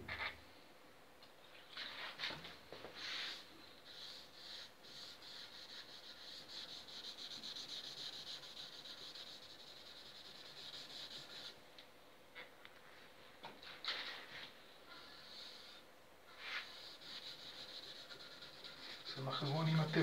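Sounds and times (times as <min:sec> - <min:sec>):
fast rubbing on wood: 0:03.9 - 0:11.5.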